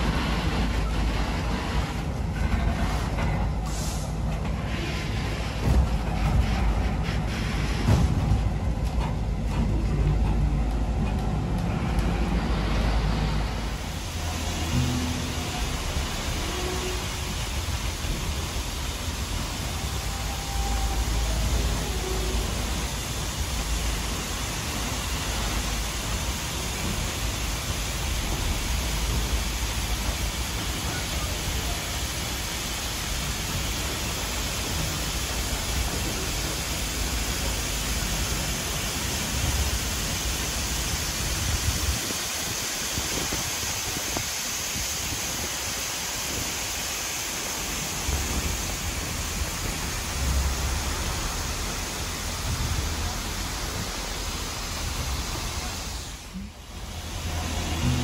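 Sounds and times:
waterfall rushing: 12.5 - 58.0.

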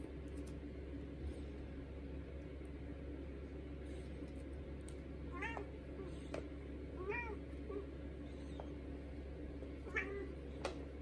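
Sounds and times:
cat meowing: 5.3 - 6.1, 7.0 - 8.7, 9.8 - 10.4.

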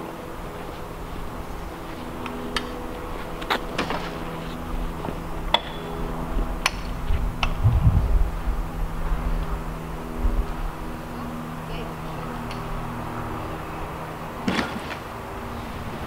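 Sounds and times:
steady low hum: 0.0 - 16.0
low rumble: 6.3 - 12.2.

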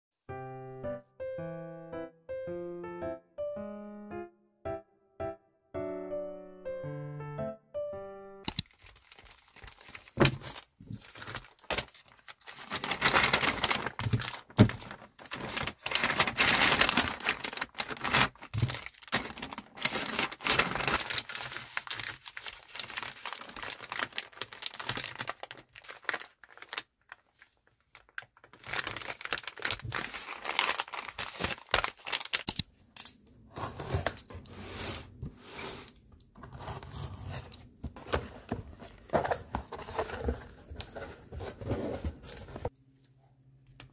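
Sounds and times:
plastic and paper crinkling: 8.5 - 32.6, 36.4 - 42.8.

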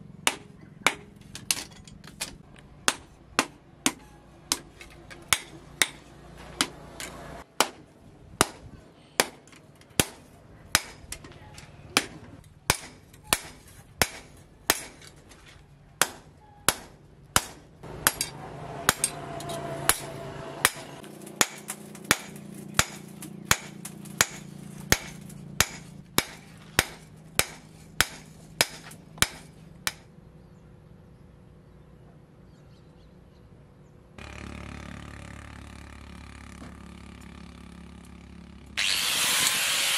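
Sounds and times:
hammer blows ringing on anvil: 16.0 - 30.0.

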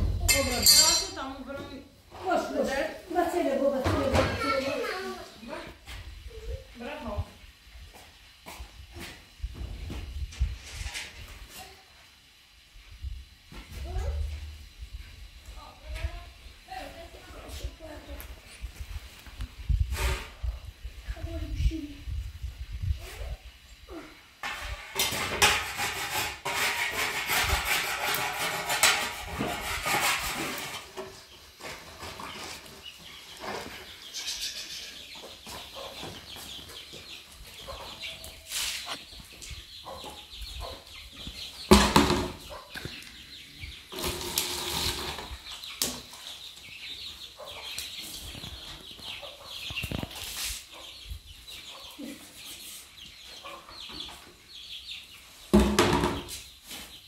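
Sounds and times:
chickens clucking: 24.2 - 57.0.

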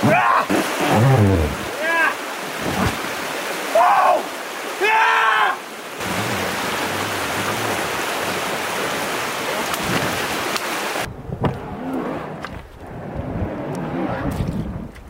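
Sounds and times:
rushing water hiss: 0.0 - 11.1
wind rumble on microphone: 11.1 - 15.0.

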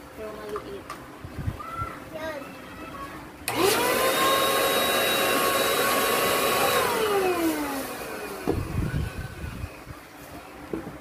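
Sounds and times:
electric air pump whining: 3.5 - 9.9.

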